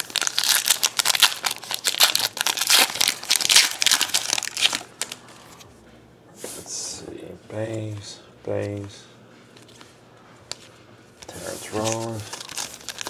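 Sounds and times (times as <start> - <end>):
wrapper crinkling: 0.0 - 5.3, 11.3 - 13.0.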